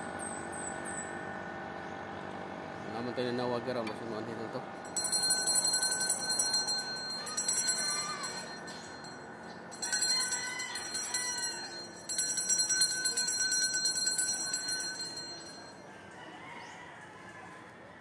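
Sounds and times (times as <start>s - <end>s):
hand bell rung rapidly: 4.8s - 15.8s.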